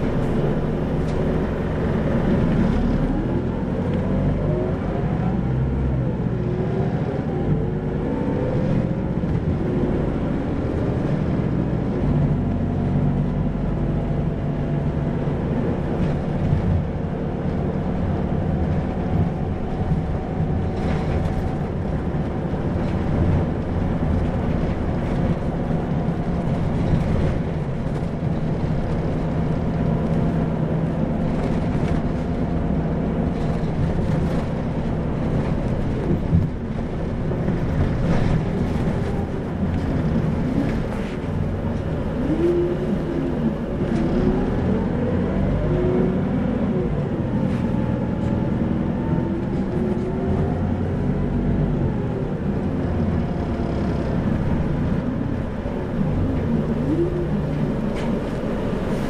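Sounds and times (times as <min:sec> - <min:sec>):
bus diesel engine: 0:00.0 - 0:59.0
road noise: 0:00.0 - 0:59.0.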